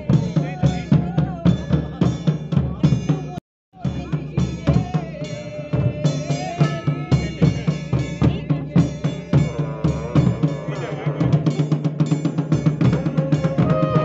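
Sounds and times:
drums beating fast rhythm: 0:00.0 - 0:14.0
wavering melody: 0:12.7 - 0:14.0.

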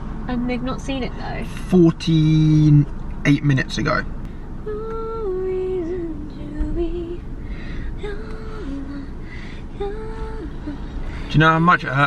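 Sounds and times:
low steady rumble: 0:00.0 - 0:12.0
woman singing unaccompanied: 0:04.6 - 0:07.3, 0:07.9 - 0:11.0.

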